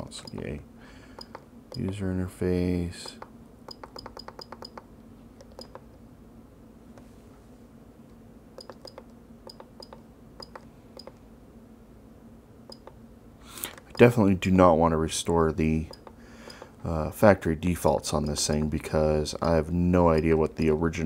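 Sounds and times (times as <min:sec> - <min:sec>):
faint steady hum: 0:00.0 - 0:21.0
button clicks: 0:03.0 - 0:04.8, 0:08.6 - 0:11.2.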